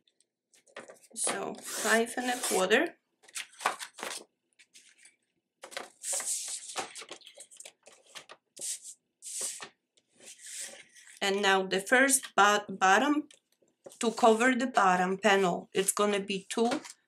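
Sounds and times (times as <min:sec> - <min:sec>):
trimmer blade cutting paper: 0:01.6 - 0:02.7
paper rustling and swishing: 0:03.4 - 0:11.2.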